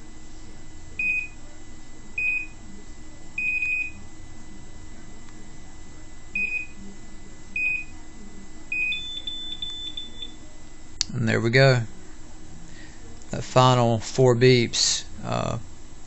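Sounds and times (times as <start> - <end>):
high electronic beeps: 8.8 - 10.4.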